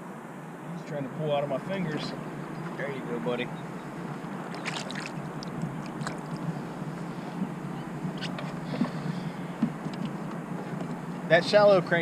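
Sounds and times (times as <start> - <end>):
steady low hum: 0.0 - 12.0
light knocks and clicks of gear: 8.1 - 11.3.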